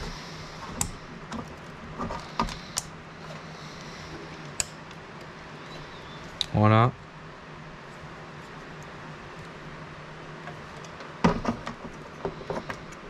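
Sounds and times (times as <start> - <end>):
handling knocks: 11.2 - 12.8.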